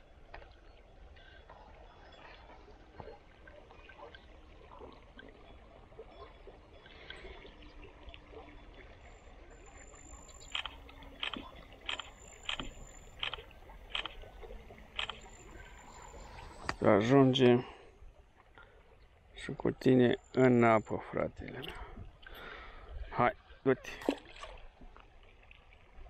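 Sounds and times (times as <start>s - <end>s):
small river running: 0.0s - 26.0s
sharp clicks: 10.4s - 14.4s, 15.0s - 15.3s.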